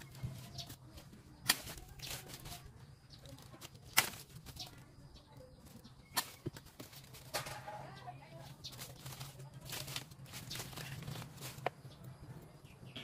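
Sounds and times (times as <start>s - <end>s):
pruning shears snapping stems: 1.4s - 2.6s, 3.3s - 4.6s, 6.1s - 7.7s.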